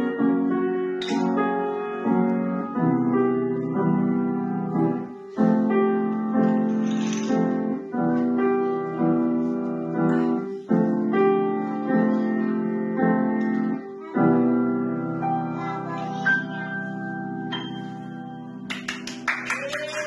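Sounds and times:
soft high piano notes: 0.0 - 18.8
grand piano chords ringing: 0.0 - 19.2.

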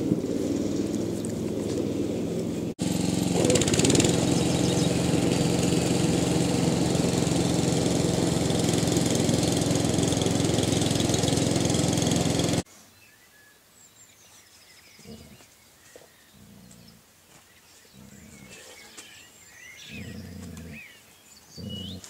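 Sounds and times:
small engine running: 0.0 - 12.7.

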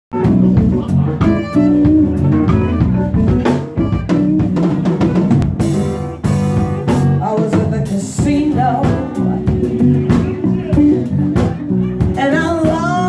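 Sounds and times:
bass guitar: 0.1 - 13.0
drum kit: 0.1 - 13.0
man and woman singing: 7.2 - 13.0.

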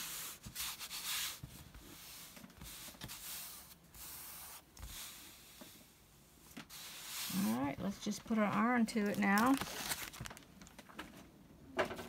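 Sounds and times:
hands rubbing on sheet: 6.7 - 7.9.

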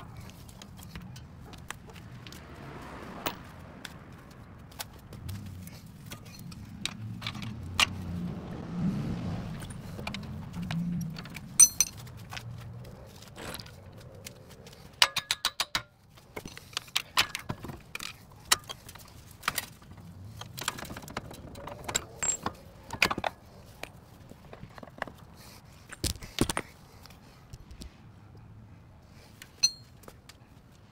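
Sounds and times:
metal tools clinking on car suspension: 5.3 - 8.2, 9.5 - 12.4, 14.9 - 23.4, 29.4 - 30.1.

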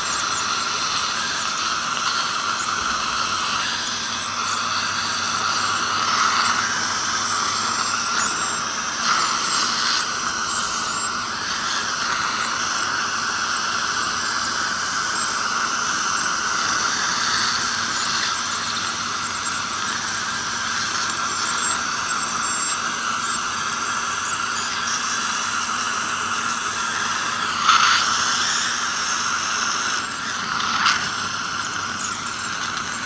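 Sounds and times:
dental suction: 0.0 - 33.0
ultrasonic dental scaler whine: 0.0 - 33.0.

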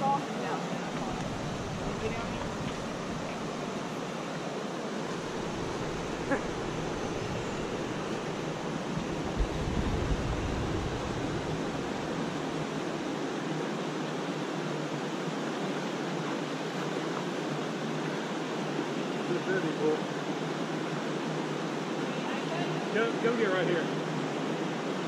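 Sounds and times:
creek water rushing: 0.0 - 25.0
wind bumps on microphone: 5.2 - 12.6.

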